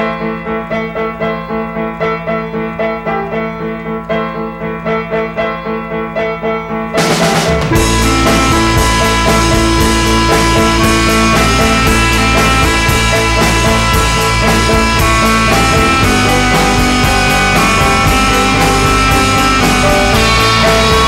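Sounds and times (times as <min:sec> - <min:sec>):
band with drums and heavy bass: 0:07.0 - 0:21.0
pulsing background music: 0:07.4 - 0:21.0.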